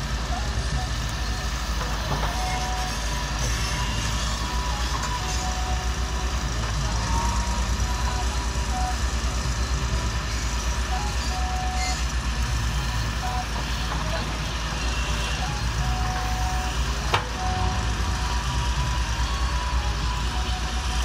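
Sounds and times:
excavator diesel engine running: 0.0 - 21.0
short high tones: 14.8 - 21.0.

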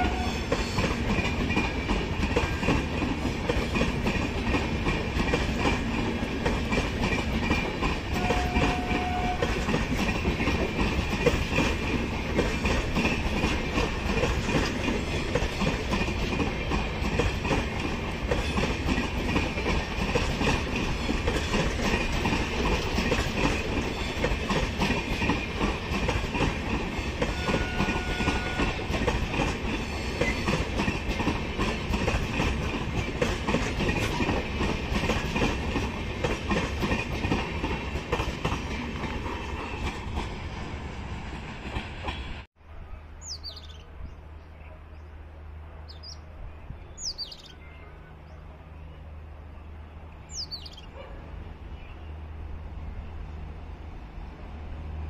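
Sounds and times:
train wheels clicking over rail joints: 0.0 - 40.6
train rumble: 0.0 - 55.0.

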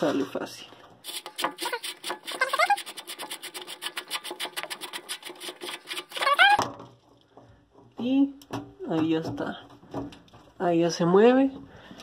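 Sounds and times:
nut scraping along threads: 1.0 - 6.7.

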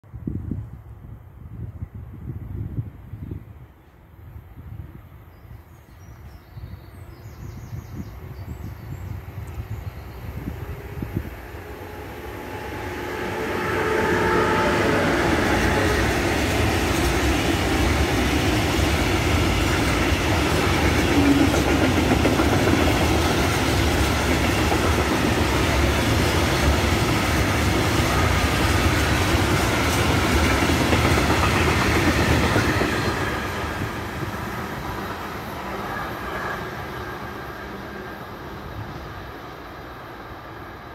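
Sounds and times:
freight train wheels on rails: 9.1 - 40.9.

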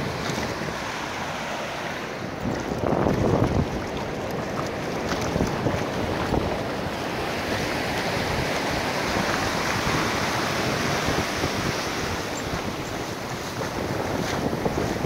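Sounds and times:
ocean surf breaking: 0.0 - 15.0
wind buffeting microphone: 2.1 - 15.0.

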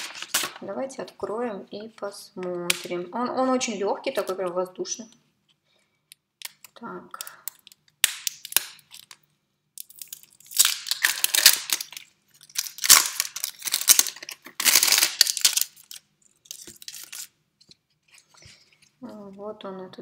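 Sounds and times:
plastic wrapper crinkling and tearing: 0.0 - 0.7, 6.4 - 18.9.

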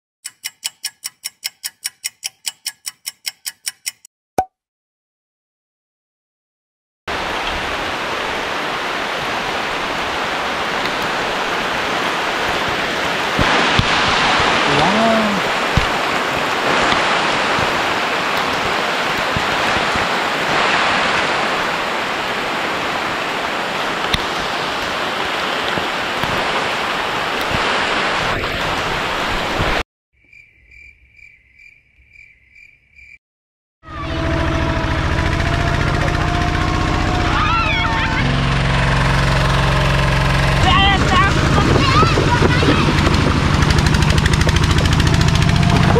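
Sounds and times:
heavy rain falling: 7.1 - 29.8, 38.8 - 45.9
tractor engine running: 33.9 - 45.9.

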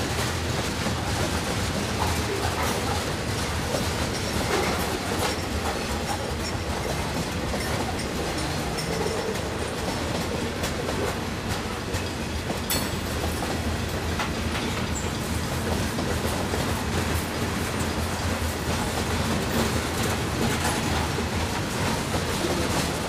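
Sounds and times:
freight train rumbling past: 0.0 - 23.0
wheels clicking over rail joints: 0.1 - 23.0.

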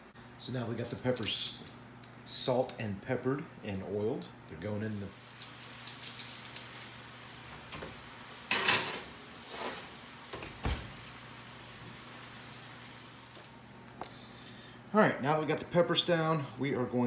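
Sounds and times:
oven door opening: 7.6 - 11.0
baking sheet scraping on oven rack: 8.5 - 10.0
oven door shutting thump: 10.3 - 11.0.

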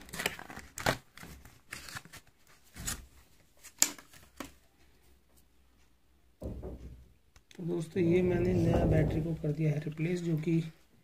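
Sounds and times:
plastic crinkles and scrapes: 0.0 - 4.5.

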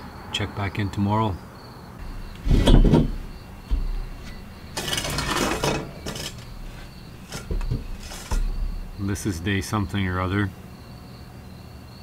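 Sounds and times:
heavy thump with low rumble: 2.0 - 4.7
rustling: 2.0 - 9.1.

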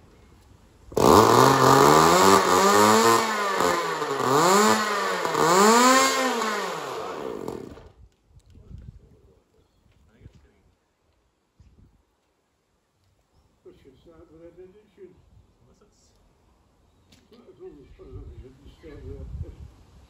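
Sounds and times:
small engine revving: 0.9 - 7.9.

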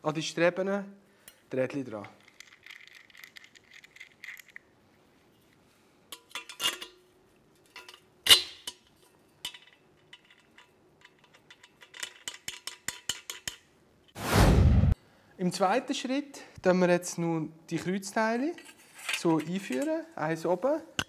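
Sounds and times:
metal parts clinking: 2.0 - 4.6, 6.1 - 7.0, 7.6 - 13.6, 18.6 - 20.0.

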